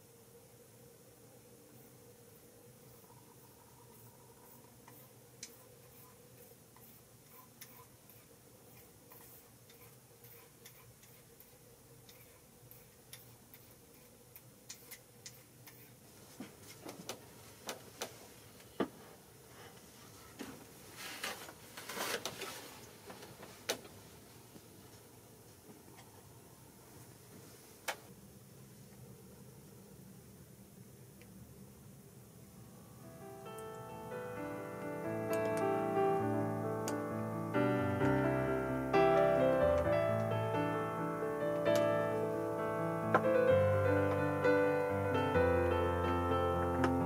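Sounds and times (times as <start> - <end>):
rustling: 15.4 - 25.7.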